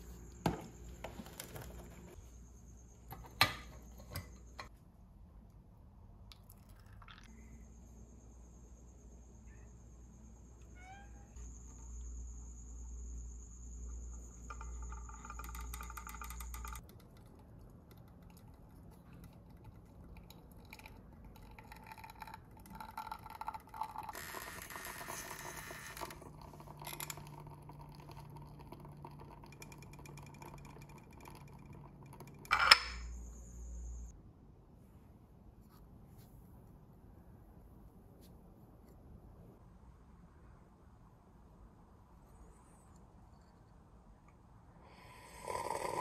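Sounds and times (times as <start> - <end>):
small mechanical ticks: 14.5 - 32.4
espresso trickling into glass: 20.5 - 33.0.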